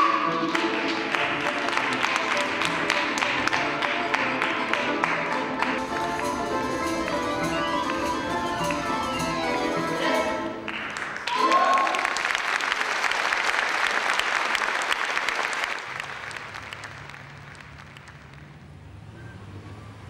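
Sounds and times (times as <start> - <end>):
folk ensemble music: 0.0 - 11.8
audience applause: 0.0 - 18.6.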